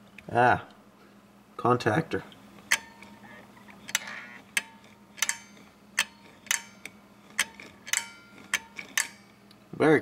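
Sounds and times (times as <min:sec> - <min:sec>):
faint low hum: 0:00.0 - 0:10.0
contactor clicking with metallic ring: 0:02.7 - 0:09.6.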